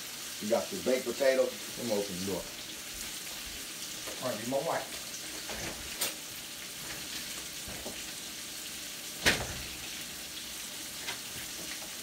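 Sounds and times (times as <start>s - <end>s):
steak sizzling in a skillet: 0.0s - 12.0s.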